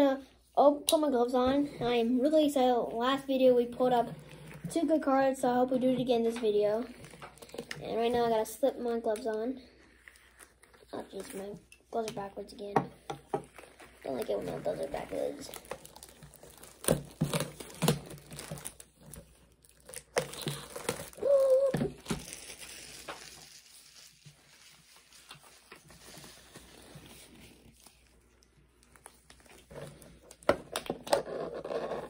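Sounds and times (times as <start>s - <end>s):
rubber gloves rustling and snapping: 13.3s - 31.8s.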